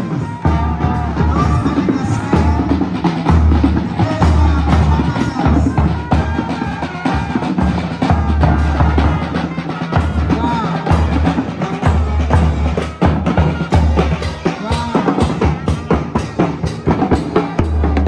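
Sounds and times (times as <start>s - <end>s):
music with drums and heavy bass: 0.0s - 18.0s.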